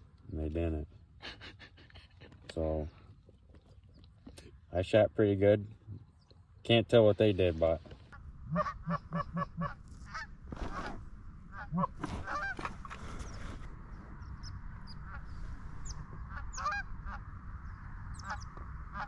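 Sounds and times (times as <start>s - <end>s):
goose honking: 8.5s - 12.8s, 14.9s - 17.3s, 18.2s - 19.0s
goose clucking: 8.5s - 13.0s, 14.9s - 17.3s, 18.2s - 19.0s.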